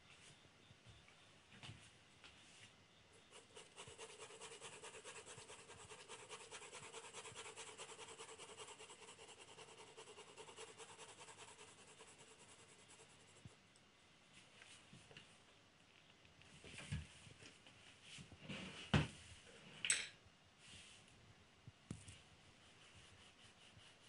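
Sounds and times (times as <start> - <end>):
pencil scratching on paper: 3.3 - 13.5, 22.6 - 24.0.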